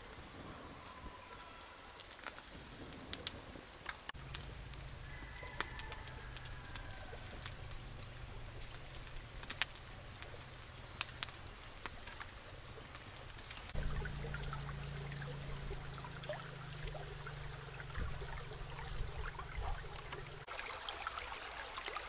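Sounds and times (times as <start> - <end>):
twig fire crackling and popping: 0.0 - 20.5
low rumble: 13.7 - 20.5.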